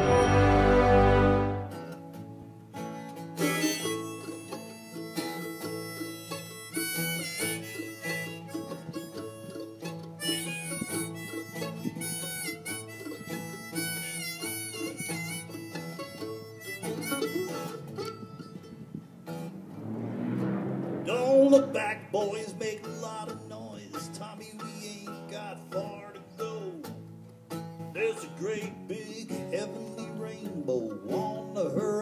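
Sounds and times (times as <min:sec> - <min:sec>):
harmonica: 0:00.0 - 0:02.0, 0:02.8 - 0:18.8
acoustic guitar strummed: 0:00.0 - 0:32.0.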